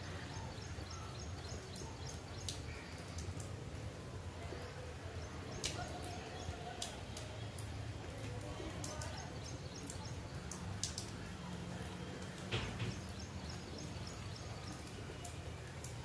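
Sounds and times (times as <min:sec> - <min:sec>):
light rain hiss: 0:00.0 - 0:16.0
sharp drip ticks: 0:00.1 - 0:16.0
birds chirping: 0:12.4 - 0:16.0.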